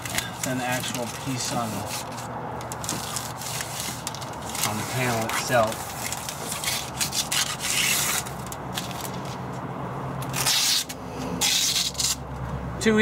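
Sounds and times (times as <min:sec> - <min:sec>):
hands rubbing against plastic trim: 0:00.0 - 0:09.2.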